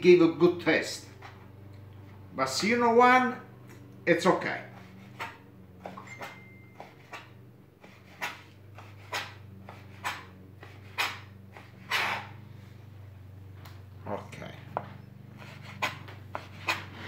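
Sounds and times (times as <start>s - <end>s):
knife cutting on plastic board: 4.6s - 12.4s, 14.7s - 17.0s.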